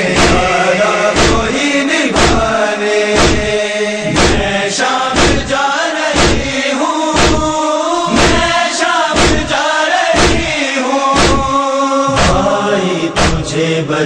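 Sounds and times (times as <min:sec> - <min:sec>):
strong beat: 0:00.0 - 0:01.6, 0:02.2 - 0:02.6, 0:03.2 - 0:04.6, 0:05.2 - 0:05.6, 0:06.2 - 0:06.6, 0:07.2 - 0:08.6, 0:09.2 - 0:09.6, 0:10.2 - 0:10.6, 0:11.2 - 0:12.6, 0:13.2 - 0:13.6
group of voices chanting: 0:00.0 - 0:14.0.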